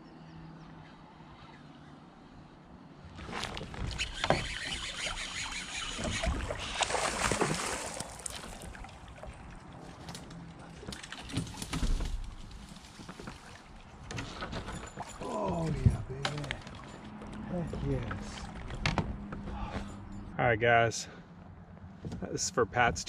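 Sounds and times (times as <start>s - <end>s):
water splashing: 3.1s - 14.0s.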